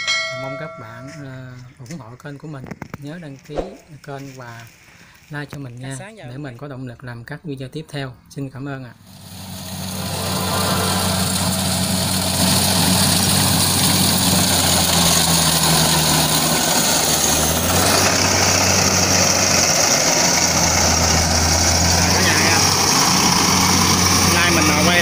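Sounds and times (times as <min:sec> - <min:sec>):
combine harvester engine hum: 0:09.0 - 0:25.0
harvester cutting hiss: 0:09.0 - 0:25.0.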